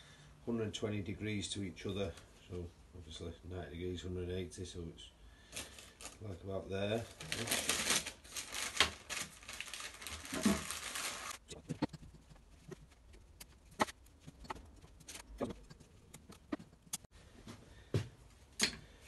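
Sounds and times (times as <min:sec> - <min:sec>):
rustling handling noise: 0:05.5 - 0:18.4.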